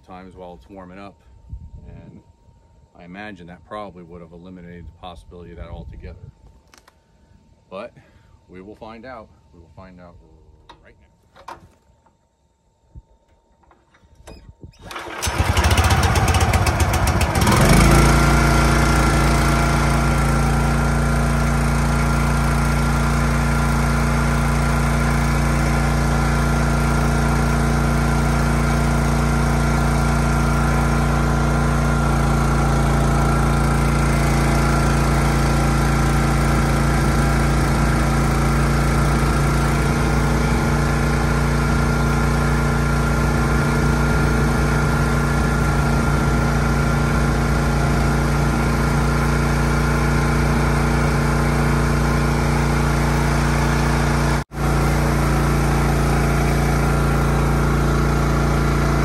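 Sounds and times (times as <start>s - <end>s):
log splitter engine running: 14.8s - 59.0s.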